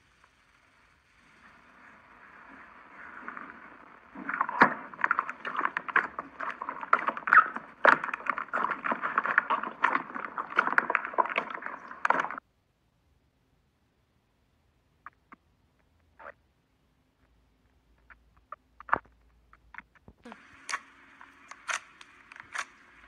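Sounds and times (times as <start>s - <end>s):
slime squelching and popping: 3.5s - 12.4s.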